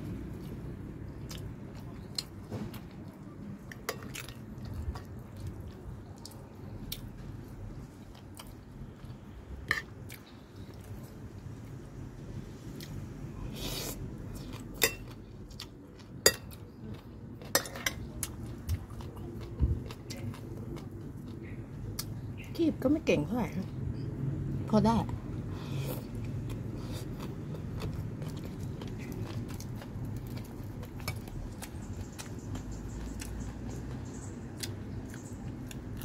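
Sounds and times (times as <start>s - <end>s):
spoon clinking against plate: 14.8s - 15.2s, 17.4s - 18.0s
person chewing and biting: 25.9s - 34.0s.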